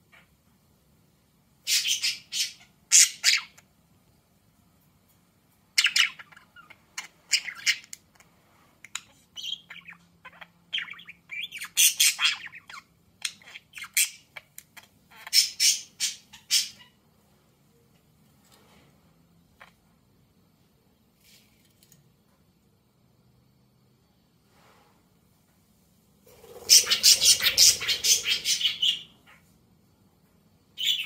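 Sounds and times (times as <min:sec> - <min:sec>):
budgerigar chirping and chattering: 0:01.7 - 0:03.6, 0:05.8 - 0:08.0, 0:09.0 - 0:17.0, 0:26.5 - 0:29.4, 0:30.8 - 0:31.0.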